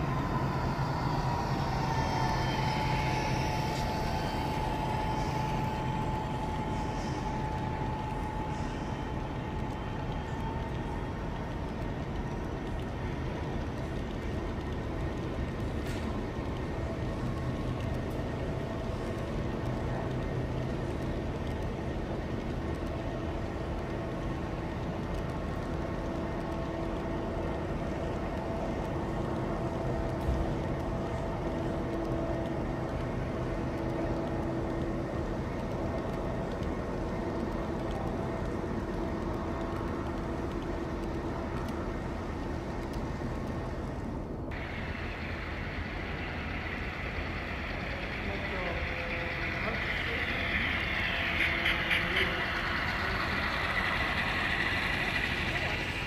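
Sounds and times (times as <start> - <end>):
model train rumbling hum: 0.0 - 56.0
hiss: 44.6 - 56.0.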